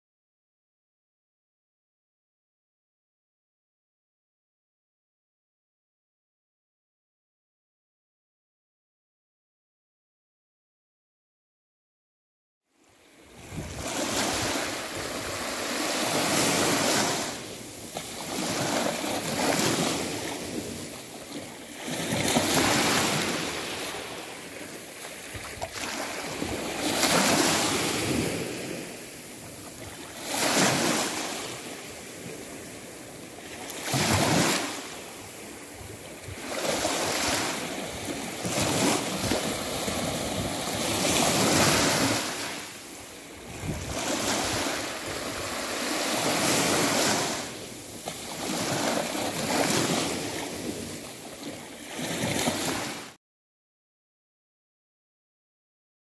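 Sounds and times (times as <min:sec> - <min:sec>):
waves washing in: 0:12.9 - 0:53.2.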